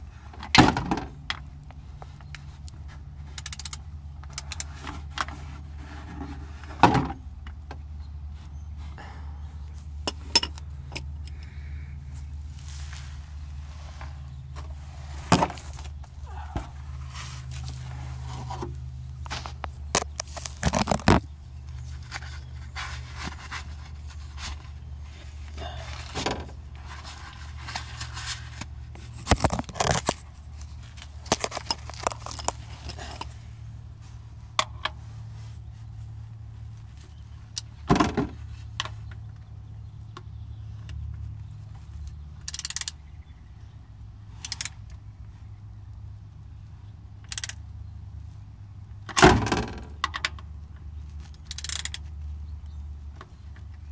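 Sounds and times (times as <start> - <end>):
steady low hum: 0.0 - 37.9
metallic clicks of hand tools: 3.4 - 4.7, 42.4 - 43.0, 47.2 - 47.6, 51.3 - 52.0.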